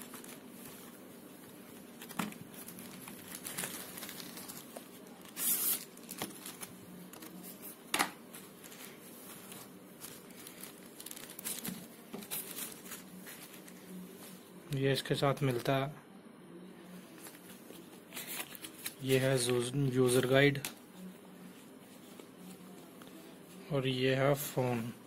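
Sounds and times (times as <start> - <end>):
plastic packaging crinkling: 0.0 - 7.5, 8.3 - 13.9.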